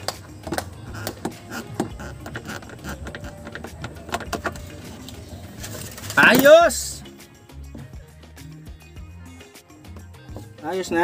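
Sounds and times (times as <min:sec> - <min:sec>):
hands tapping on windshield: 0:00.0 - 0:04.8.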